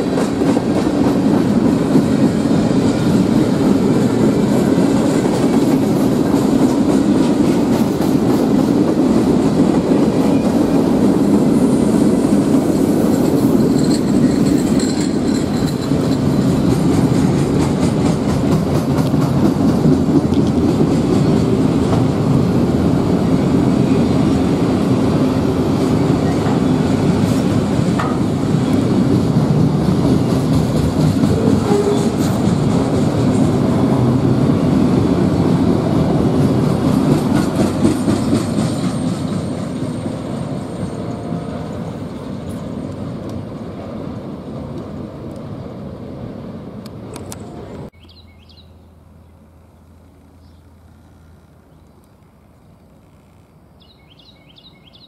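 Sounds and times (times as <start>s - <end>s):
freight train wheels clattering: 0.0s - 43.5s.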